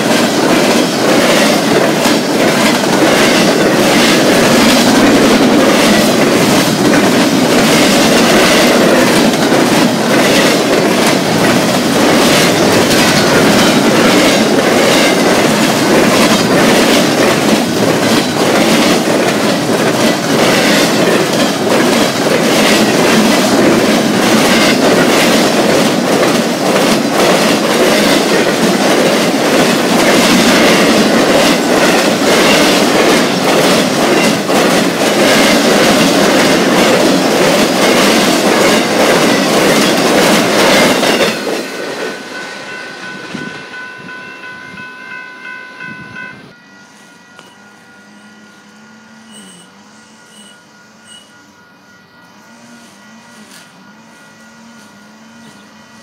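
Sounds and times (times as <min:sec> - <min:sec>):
wheels clacking over rail joints: 0:00.0 - 0:44.6
freight train rumbling past: 0:00.0 - 0:56.0.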